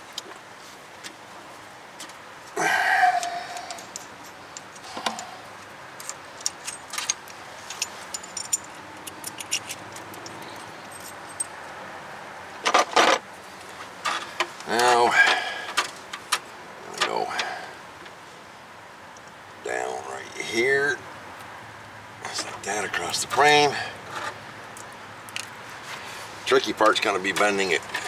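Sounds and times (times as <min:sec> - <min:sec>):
metal tool clinks and rattles: 0:06.0 - 0:11.7.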